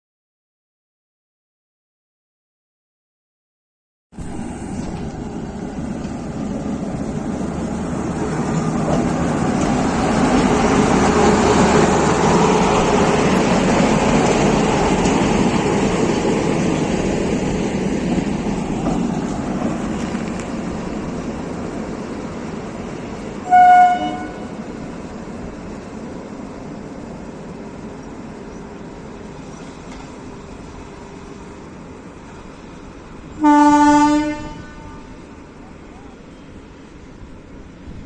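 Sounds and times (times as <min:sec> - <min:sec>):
electric locomotive passing: 0:04.2 - 0:38.0
loud train horn: 0:23.4 - 0:24.7, 0:33.4 - 0:35.3.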